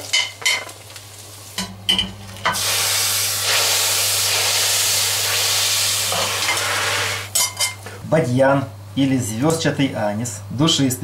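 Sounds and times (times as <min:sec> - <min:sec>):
loud sizzling hiss: 0:02.4 - 0:07.4.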